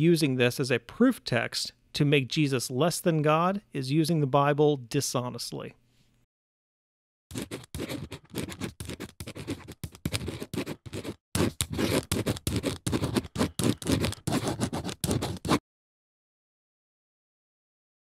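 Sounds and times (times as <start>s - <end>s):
pen scratching on paper: 7.3s - 15.6s.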